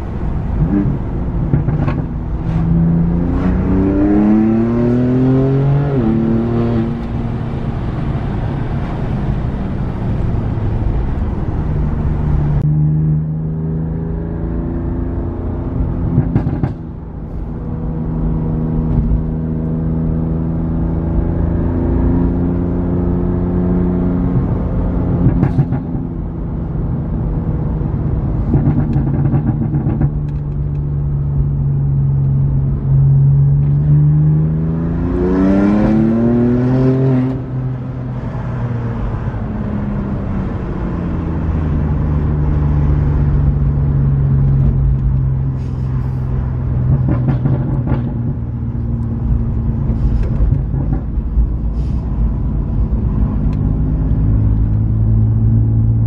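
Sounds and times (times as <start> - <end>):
car engine droning: 0.0 - 56.0.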